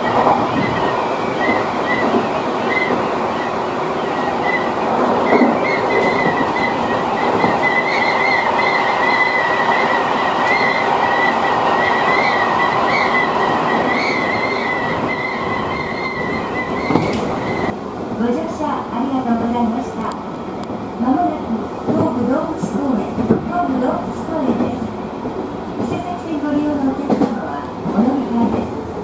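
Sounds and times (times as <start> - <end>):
wavering high squeal: 0.0 - 17.7
train wheels rumbling on rail: 0.0 - 29.0.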